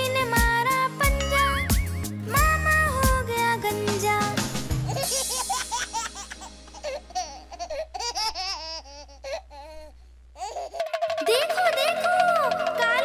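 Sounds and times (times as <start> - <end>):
music tune: 1.0 - 2.2
baby giggling and laughing: 4.8 - 11.0.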